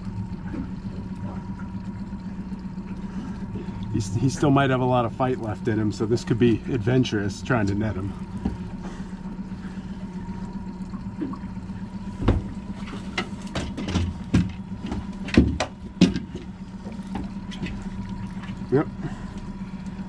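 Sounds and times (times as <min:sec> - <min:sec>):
outboard motor idling: 0:00.0 - 0:20.0
fishing gear knocking on boat: 0:08.3 - 0:08.8, 0:12.1 - 0:17.8.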